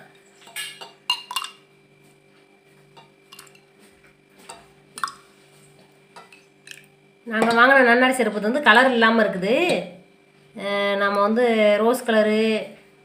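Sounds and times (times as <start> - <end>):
ladle clinking in metal pot: 0.4 - 1.6, 3.0 - 3.7.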